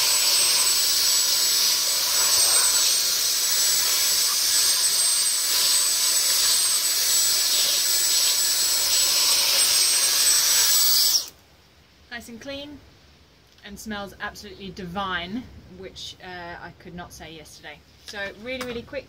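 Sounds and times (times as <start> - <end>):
handheld vacuum cleaner running: 0.0 - 11.3.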